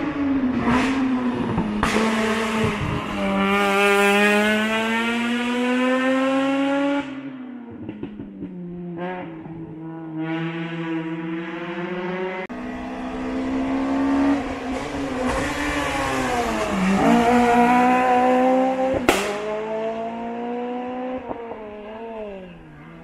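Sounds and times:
race car engine revving: 0.0 - 23.0
sharp crack: 19.0 - 19.6.

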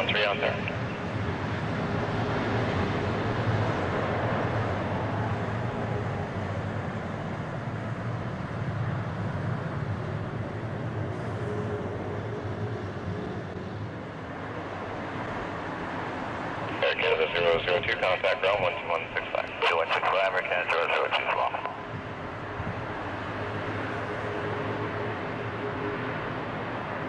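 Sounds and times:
jet engines roaring: 0.0 - 27.0.

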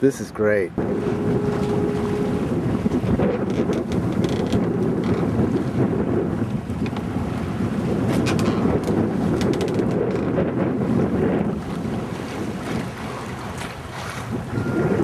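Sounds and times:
wind buffeting microphone: 0.6 - 15.0.

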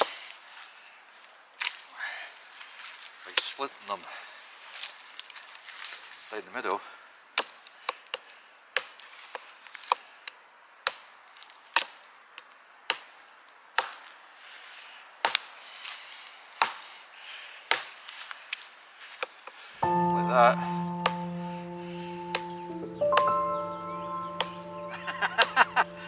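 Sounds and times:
hatchet chopping wood: 7.4 - 8.2, 16.6 - 16.8, 17.7 - 18.0.

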